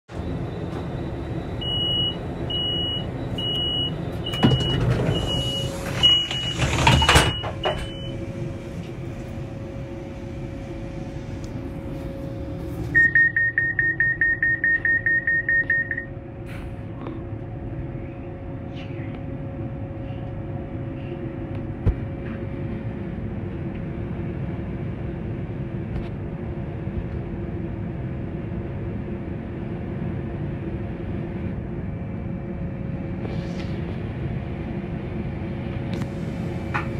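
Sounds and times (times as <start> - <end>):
diesel locomotive idling: 0.1 - 36.9
high electronic beeps: 13.0 - 16.1.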